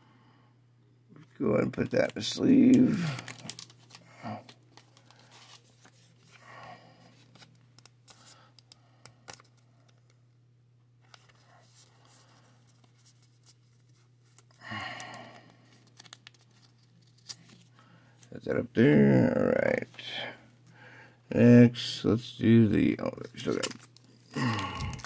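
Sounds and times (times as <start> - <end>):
plastic sleeve rustling: 1.9 - 6.4, 11.0 - 18.3, 23.2 - 25.0.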